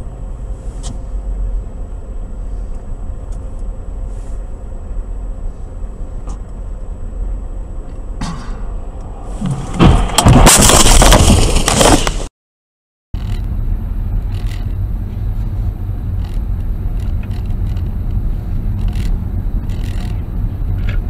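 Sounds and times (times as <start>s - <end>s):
car driving rumble: 0.0s - 12.2s, 13.2s - 21.0s
car crash: 8.2s - 12.3s.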